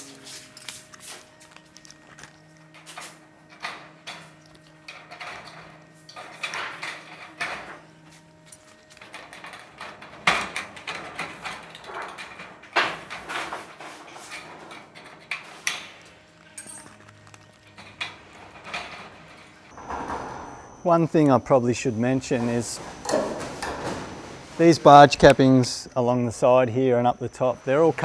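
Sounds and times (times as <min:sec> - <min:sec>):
metal sheet rattling: 0:09.0 - 0:16.1, 0:17.6 - 0:20.8, 0:22.3 - 0:25.2.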